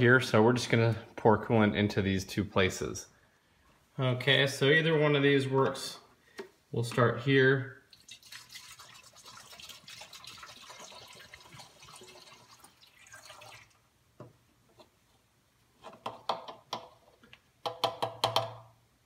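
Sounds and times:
liquid pouring through funnel: 7.8s - 13.9s.

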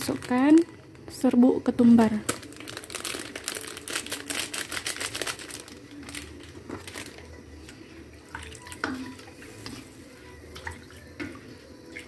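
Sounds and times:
plastic packet crinkling and clicking: 0.0s - 1.1s, 2.0s - 7.4s.

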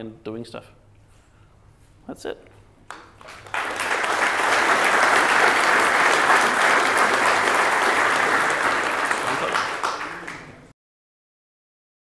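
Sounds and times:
audience applauding: 2.9s - 10.7s.

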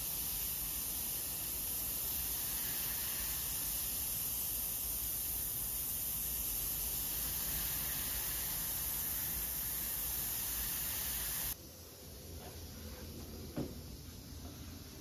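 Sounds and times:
airbrush hissing: 0.0s - 11.6s
faint hiss: 0.0s - 15.0s.

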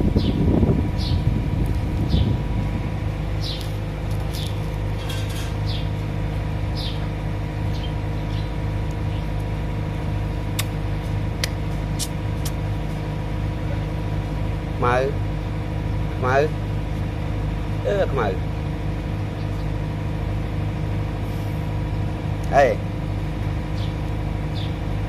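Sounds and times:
engine idling: 0.0s - 25.0s
sharp clicks: 10.5s - 10.8s, 11.4s - 12.6s.

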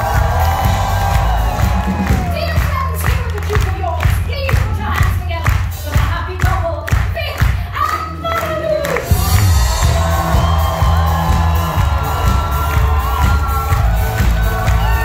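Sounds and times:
audience cheering and whooping: 0.0s - 3.0s, 8.4s - 15.0s
live band music: 8.4s - 15.0s.

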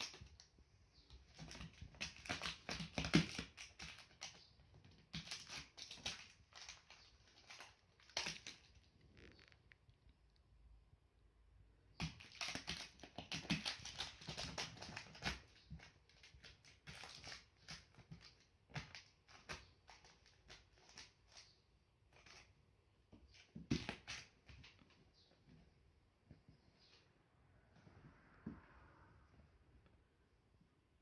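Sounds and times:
kitten scratching cloth: 0.0s - 9.8s, 11.9s - 24.8s.

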